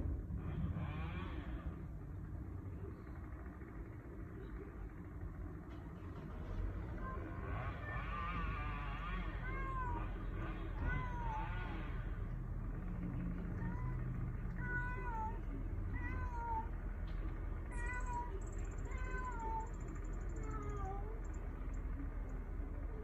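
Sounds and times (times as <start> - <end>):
cat yowling: 7.0 - 12.0, 13.5 - 16.7, 17.7 - 21.2.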